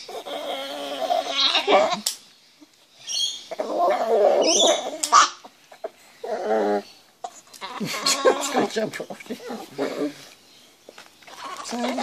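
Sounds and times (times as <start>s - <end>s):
small dog squealing: 3.5s - 5.5s.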